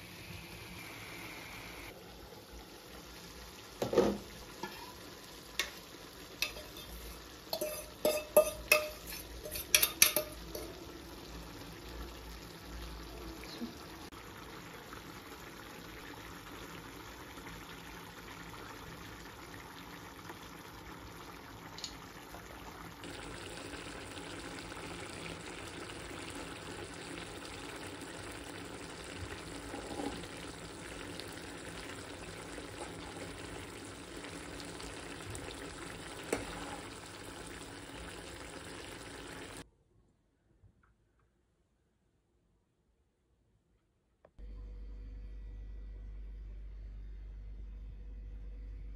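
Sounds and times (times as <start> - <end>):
stew sizzling in a frying pan: 0.0 - 39.6
metal spoon scraping a pot: 6.4 - 10.7.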